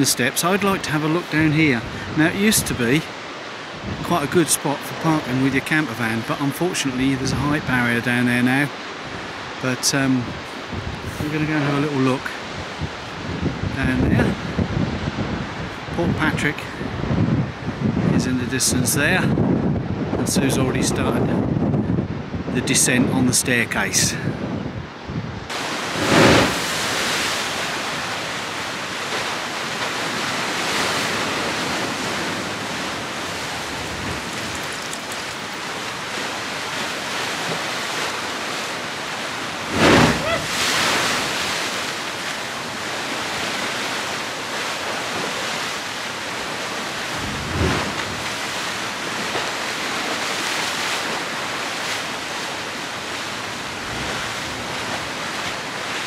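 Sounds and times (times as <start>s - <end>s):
sea surf breaking in rock gully: 0.0s - 56.0s.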